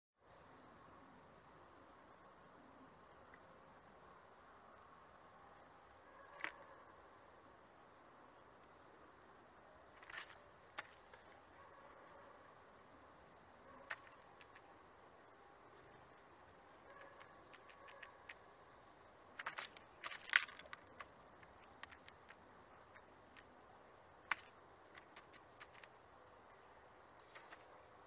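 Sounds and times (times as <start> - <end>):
bird pecking taps and clicks: 13.8 - 14.7, 16.9 - 18.4, 19.4 - 23.5, 24.2 - 25.9.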